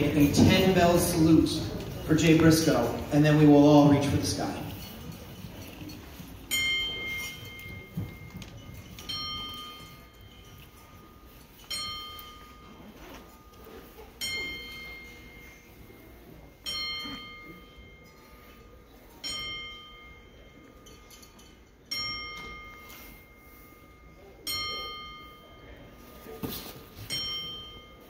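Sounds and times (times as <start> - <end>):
ring bell struck: 4.6 - 15.8, 16.6 - 25.9, 27.0 - 28.0.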